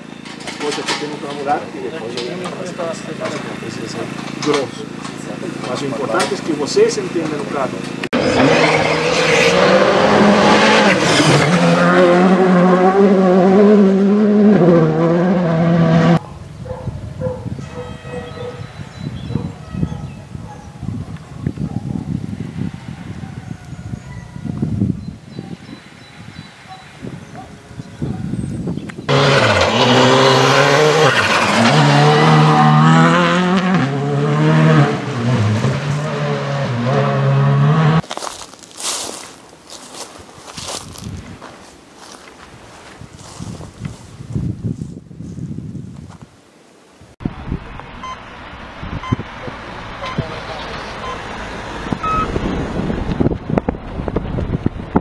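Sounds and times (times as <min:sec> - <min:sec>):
rally car engine at high revs: 0:02.1 - 0:16.2, 0:29.1 - 0:38.0
gravel spraying from tyres: 0:29.1 - 0:32.0.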